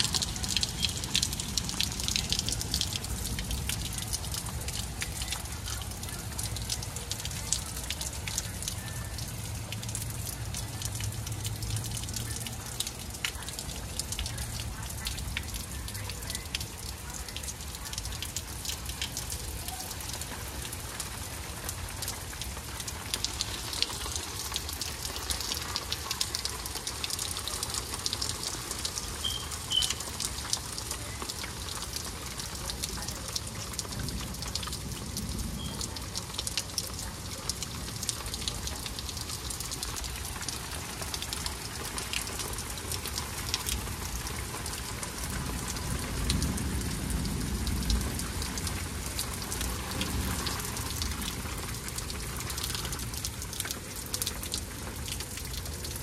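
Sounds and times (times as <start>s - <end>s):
rain patter: 0.0s - 56.0s.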